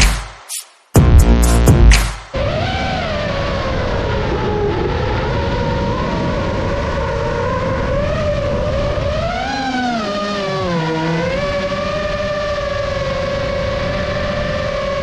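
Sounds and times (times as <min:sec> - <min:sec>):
quadcopter motors whining: 0:02.5 - 0:15.0.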